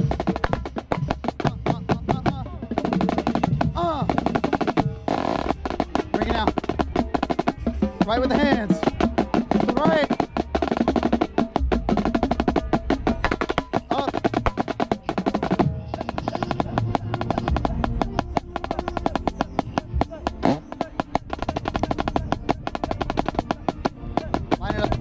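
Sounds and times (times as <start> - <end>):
band music: 0.0 - 25.0
marching drums: 0.0 - 25.0.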